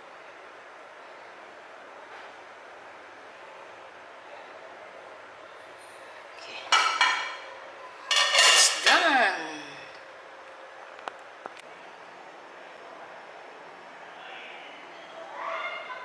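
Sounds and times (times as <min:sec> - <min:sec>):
ceramic plate scraping on counter: 0:08.1 - 0:08.9.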